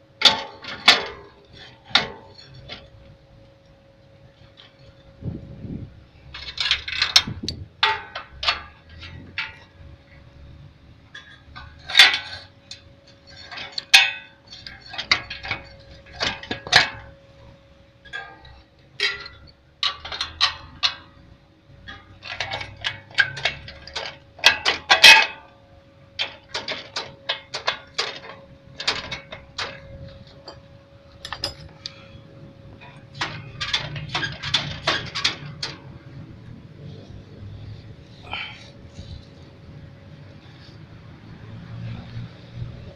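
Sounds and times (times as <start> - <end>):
faint steady hum: 0.0 - 41.2
metal parts clinking: 6.3 - 9.7, 11.1 - 17.1, 18.1 - 21.1, 21.9 - 25.5, 26.2 - 32.0, 32.8 - 36.1.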